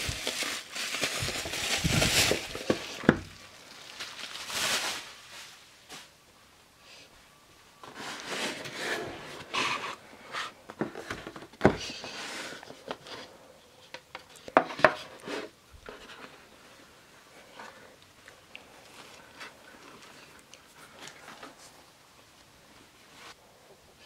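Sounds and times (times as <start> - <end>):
cardboard box rubbing and sliding: 7.8 - 10.5.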